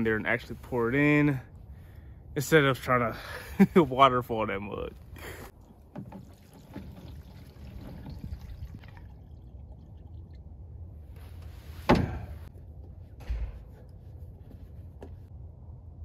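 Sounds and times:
fuel pouring into plastic can: 5.6s - 10.5s
thump: 11.8s - 12.4s, 13.2s - 13.8s.

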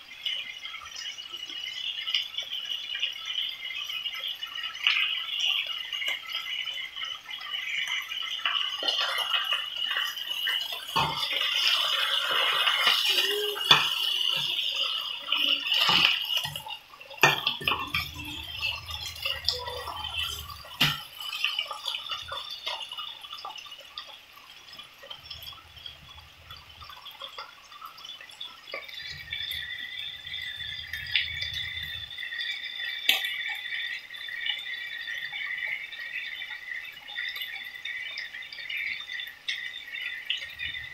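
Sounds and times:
steaks sizzling in a frying pan: 3.8s - 24.1s.

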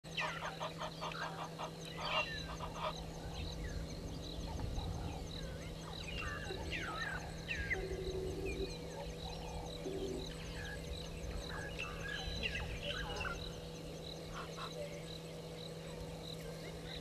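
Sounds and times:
geese honking: 0.2s - 3.5s, 14.3s - 14.9s.

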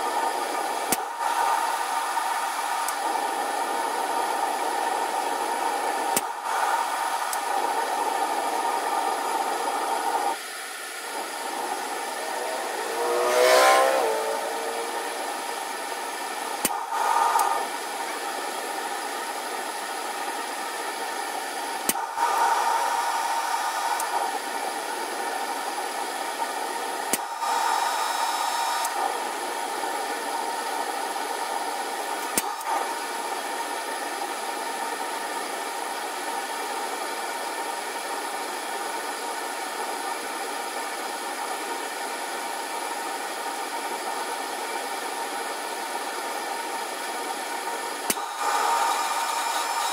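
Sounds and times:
forge steady rushing: 0.0s - 35.1s, 46.8s - 49.9s.

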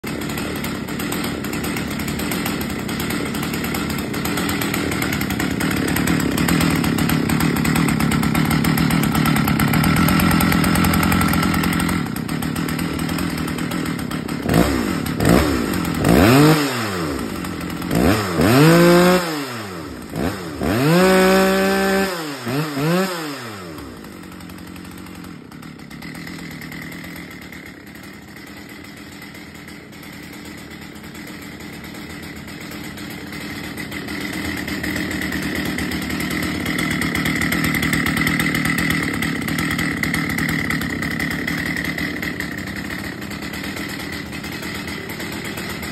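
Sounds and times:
chainsaw revving and idling: 0.0s - 45.9s.

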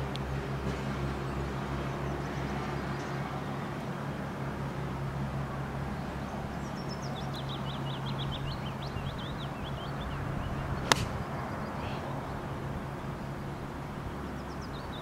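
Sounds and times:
golf club striking ball: 10.8s - 11.3s.

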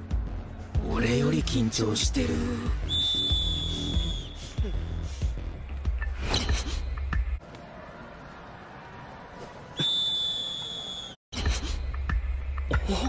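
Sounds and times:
referee whistle long note: 2.8s - 4.6s, 9.8s - 11.2s.

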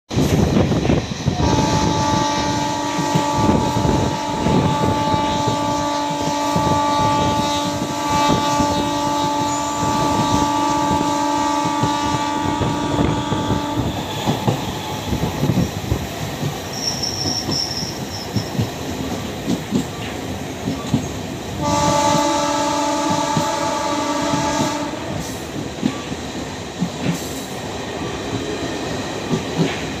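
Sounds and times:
train wheels clattering on rails: 0.1s - 30.0s
train horn blasts: 1.3s - 15.5s, 21.6s - 25.5s.

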